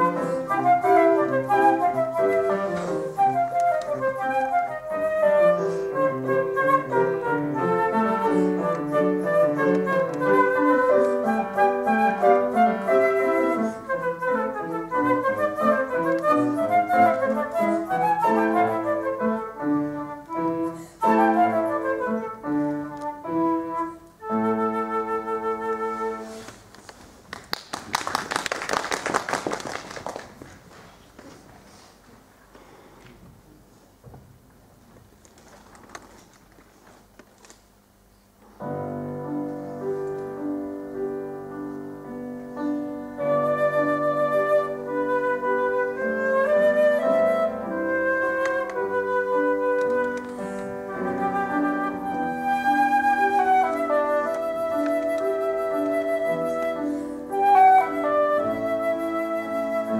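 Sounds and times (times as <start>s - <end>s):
flute and piano playing: 0.0s - 26.6s, 38.6s - 59.9s
applause: 26.7s - 31.3s.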